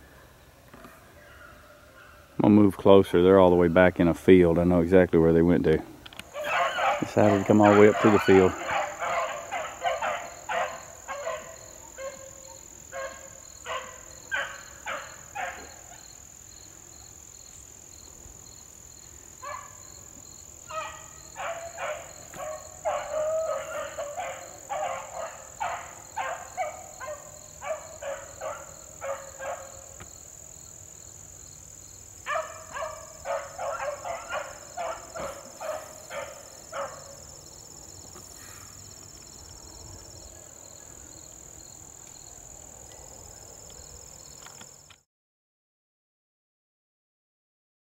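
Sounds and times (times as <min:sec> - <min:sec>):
high insect drone: 0:06.1 - 0:45.0
beagles baying: 0:06.3 - 0:16.1, 0:19.4 - 0:19.9, 0:20.6 - 0:30.0, 0:32.2 - 0:37.3.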